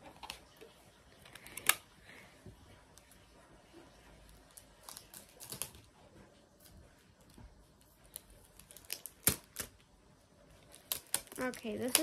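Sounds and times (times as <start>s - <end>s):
sticky tape crackling: 4.2s - 5.9s, 6.6s - 9.9s, 10.5s - 12.0s
tape snapping: 8.6s - 9.8s.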